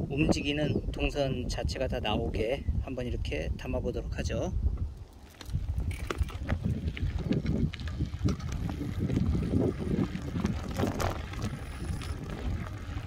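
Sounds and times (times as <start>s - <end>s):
wind buffeting microphone: 0.0s - 13.0s
bicycle clicks and rattles: 4.8s - 13.0s.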